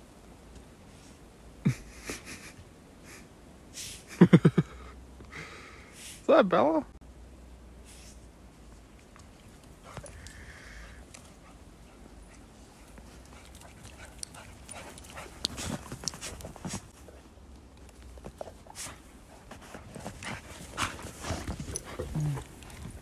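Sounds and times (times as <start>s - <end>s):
dog snuffling: 9.0s - 17.2s, 18.0s - 23.0s.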